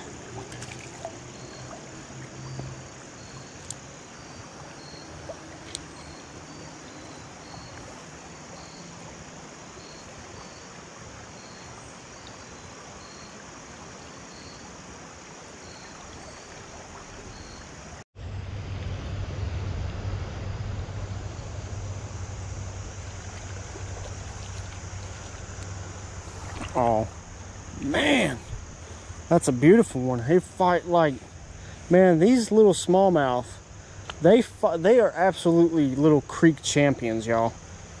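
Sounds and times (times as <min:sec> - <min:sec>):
creek water rushing: 0:00.0 - 0:38.0
faint sharp clicks: 0:03.6 - 0:03.8, 0:34.0 - 0:34.2.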